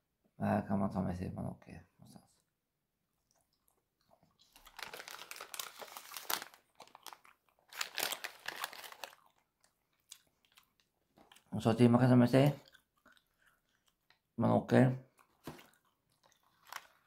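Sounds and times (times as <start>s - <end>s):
crisp packet crinkling: 4.4s - 11.7s, 15.1s - 17.0s.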